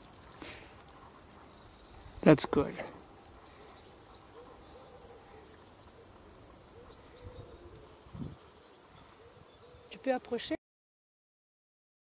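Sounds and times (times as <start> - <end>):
low hooting bird calls: 0.9 - 10.1.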